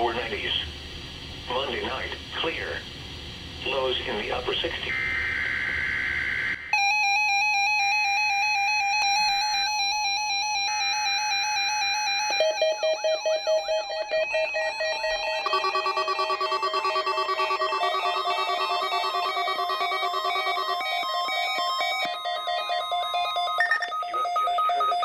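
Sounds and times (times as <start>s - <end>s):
warbling alarm: 4.9s - 25.0s
pulsing beep: 8.9s - 25.0s
screeching data bursts: 10.4s - 25.0s
electronic alert beeps: 12.3s - 25.0s.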